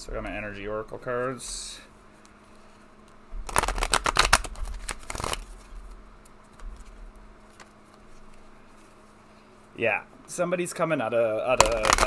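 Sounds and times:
cards shuffling: 2.6s - 9.1s, 11.5s - 12.0s.

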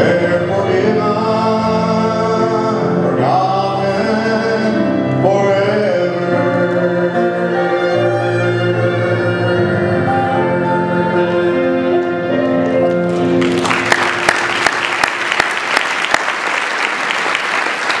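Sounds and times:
song accompaniment holding long notes: 0.0s - 18.0s
audience applause: 12.4s - 18.0s.

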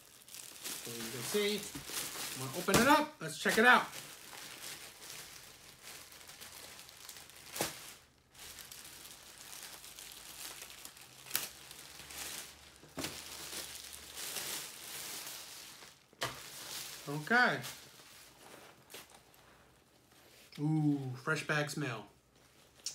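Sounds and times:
plastic packaging crinkling: 0.0s - 20.2s.

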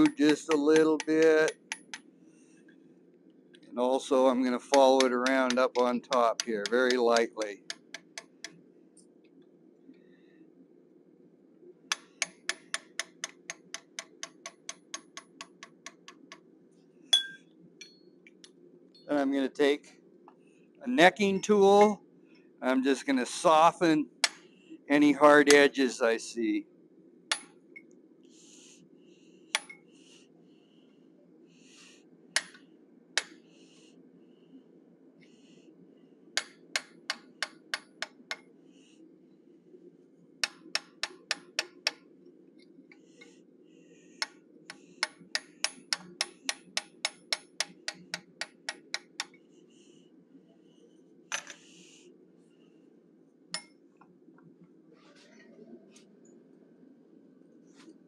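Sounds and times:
faint low hum: 13.2s - 58.0s.

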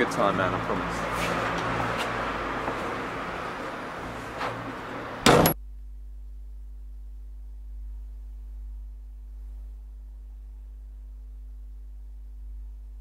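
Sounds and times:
outdoor background noise: 0.0s - 13.0s
front door slamming: 5.2s - 5.6s
low steady hum: 5.2s - 13.0s.

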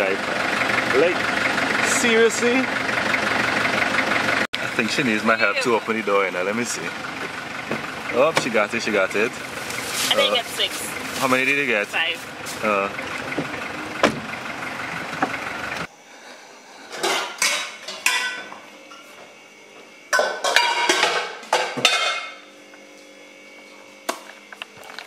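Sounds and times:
metal pots and pans clanking: 16.9s - 18.4s, 20.2s - 22.4s.

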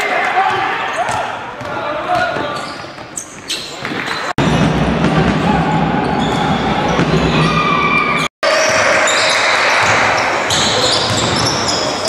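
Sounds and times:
indoor hall noise: 0.0s - 12.0s
sneaker squeaks: 0.8s - 4.3s, 6.1s - 12.0s
basketball bouncing: 4.4s - 7.5s, 9.8s - 12.0s.

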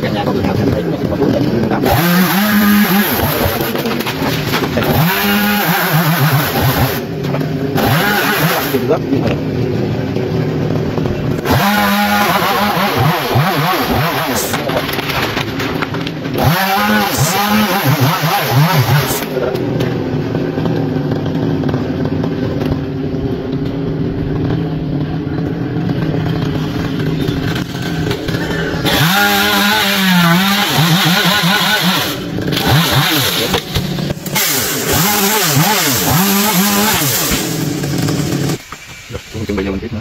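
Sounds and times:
chainsaw engine revving: 0.0s - 38.7s.

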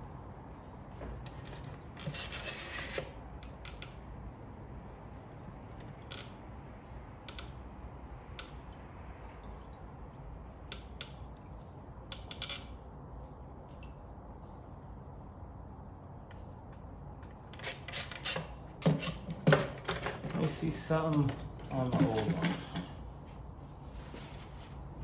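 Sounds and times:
scraping and rubbing of small parts: 1.2s - 3.2s.

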